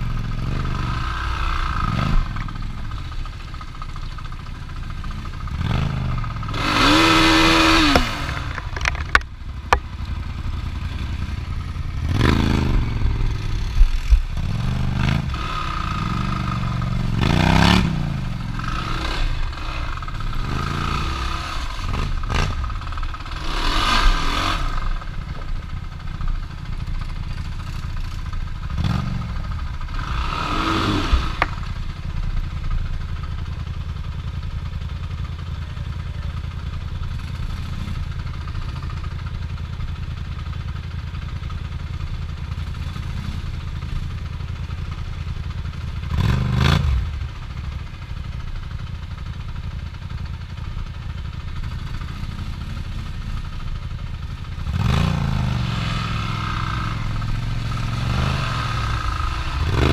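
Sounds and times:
off-road vehicle engines revving: 0.0 - 26.4, 27.0 - 31.9, 45.9 - 47.4, 51.6 - 59.9.

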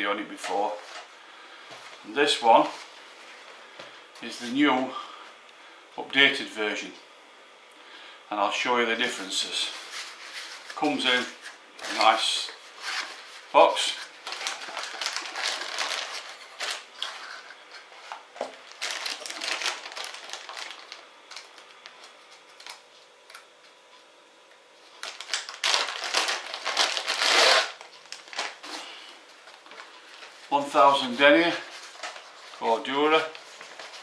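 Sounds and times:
plastic bag crinkling: 9.7 - 22.8, 25.0 - 34.0.

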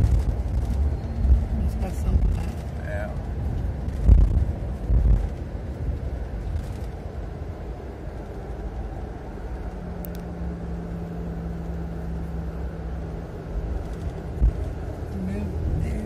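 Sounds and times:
bus engine and road rumble: 0.0 - 16.0
steady hum: 0.0 - 16.0.

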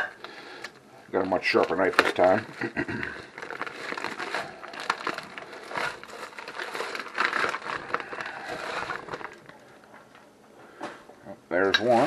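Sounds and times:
plastic packaging crinkling: 1.1 - 10.3.

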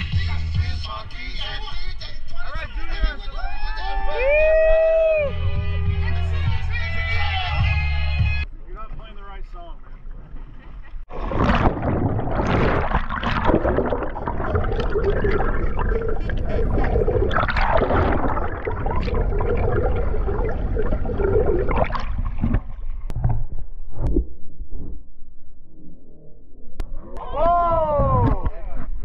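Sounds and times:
sharp splashes and knocks: 11.1 - 20.5, 21.4 - 24.2
underwater water rushing: 11.1 - 24.9.

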